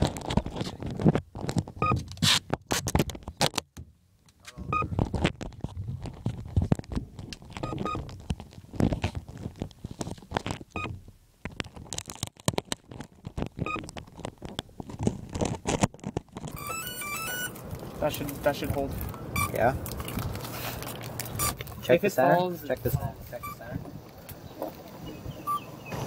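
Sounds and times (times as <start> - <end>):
microphone handling knocks and scrapes: 4.6 - 16.7
low rumbling: 16.4 - 22.1.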